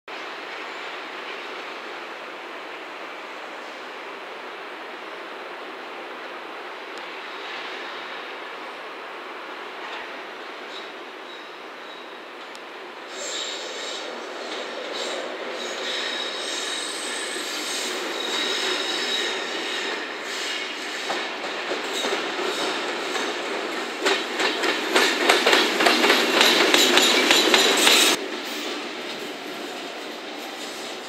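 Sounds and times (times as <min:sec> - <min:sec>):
train rolling noise: 0:00.1 - 0:31.0
steel wheels squealing: 0:10.7 - 0:12.3, 0:13.1 - 0:23.5, 0:25.0 - 0:28.8
wheels clattering over rail joints: 0:21.1 - 0:29.4.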